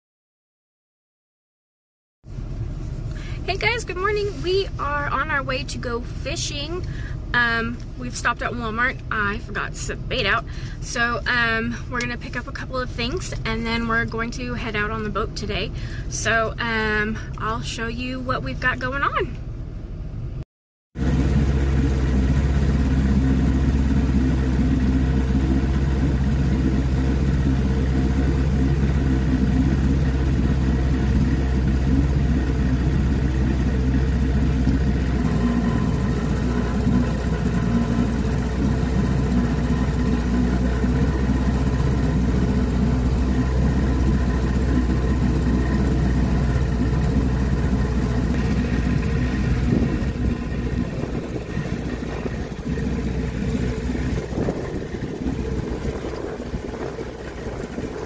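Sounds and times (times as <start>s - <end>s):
boat motor running: 21.0s - 58.0s.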